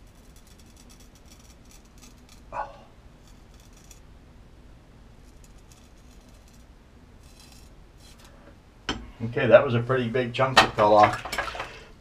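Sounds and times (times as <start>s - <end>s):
knife blade rasping on whiskers: 0.2s - 2.5s, 5.3s - 8.4s.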